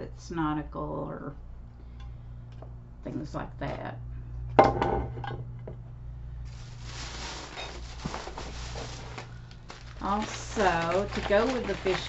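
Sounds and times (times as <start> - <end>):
plastic bag rustling: 6.4 - 12.0.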